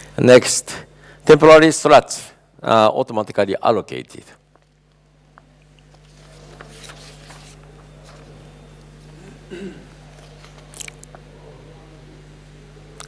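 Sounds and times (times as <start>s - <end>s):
low electrical hum: 0.0s - 13.0s
faint murmur of voices: 6.0s - 13.0s.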